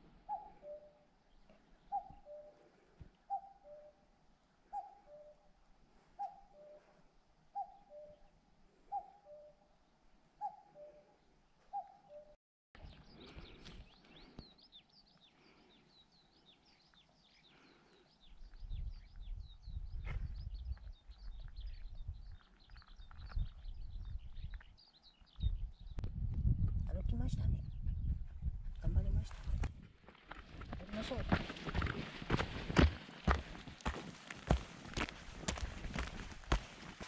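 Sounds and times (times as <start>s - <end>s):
small bird twittering song: 0.3s - 2.5s, 7.6s - 9.6s, 11.7s - 26.2s
wind buffeting microphone: 18.4s - 30.0s.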